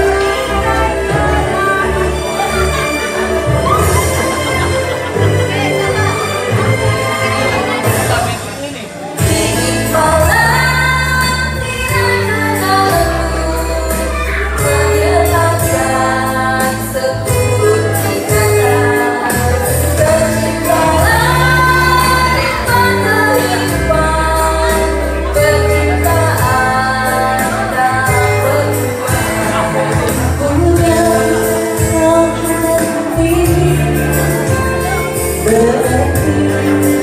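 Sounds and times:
backing track with bass and percussion: 0.0 - 37.0
women singing together: 9.2 - 34.4.

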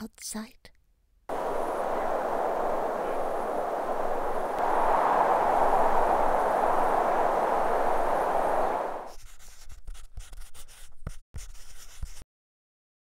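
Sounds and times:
outdoor rushing hiss: 1.3 - 9.1
chalk writing on chalkboard: 9.1 - 12.2.

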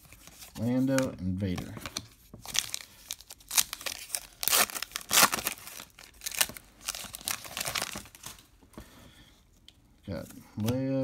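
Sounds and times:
foil wrapper tearing and crinkling: 2.5 - 8.4.

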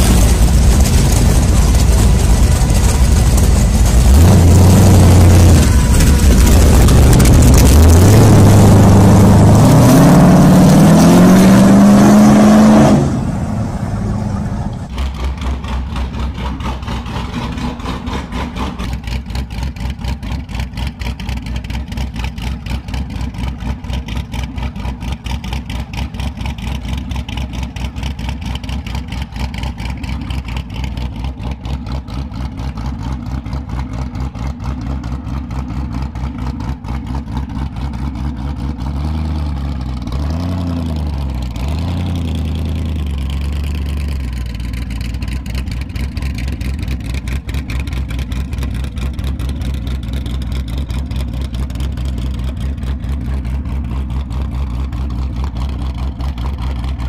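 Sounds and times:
motorcycle engine idling: 0.0 - 4.2, 14.8 - 40.1, 42.2 - 57.0
motorcycle engine revving away: 3.6 - 19.5.

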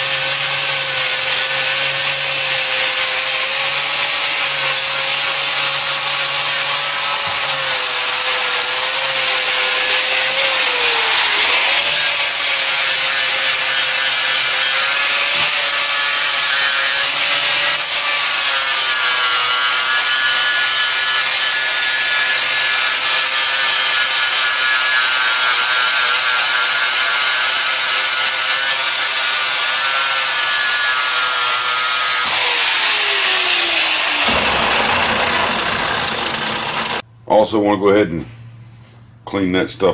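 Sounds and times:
angle grinder grinding steel: 0.0 - 37.0
grinder spinning down: 0.0 - 37.0.

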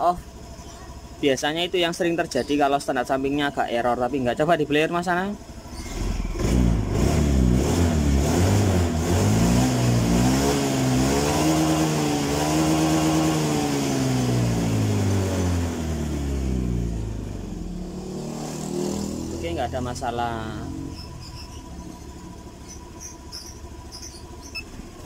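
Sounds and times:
scooter engine revving: 5.4 - 25.0.

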